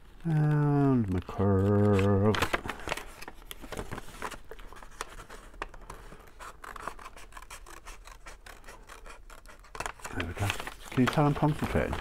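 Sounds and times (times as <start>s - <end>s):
scissors snipping paper: 6.4s - 12.0s.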